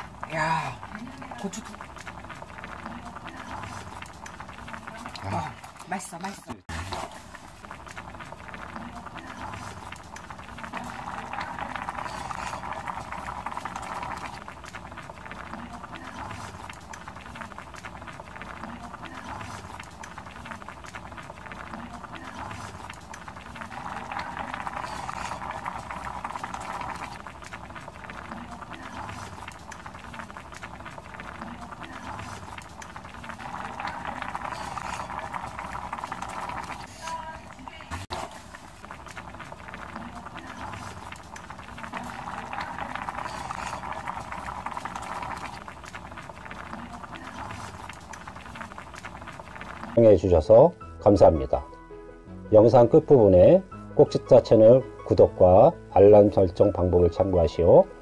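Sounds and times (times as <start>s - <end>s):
stew bubbling in a pot: 0.0s - 50.7s.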